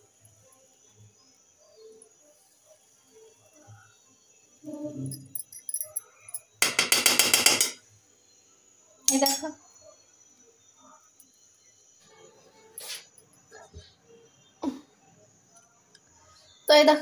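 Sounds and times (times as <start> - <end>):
hard objects clinking and rattling: 5.0 - 7.8.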